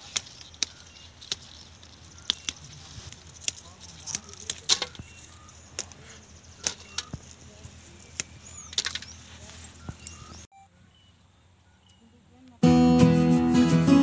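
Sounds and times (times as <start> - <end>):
bean pods snapping: 0.0 - 9.1.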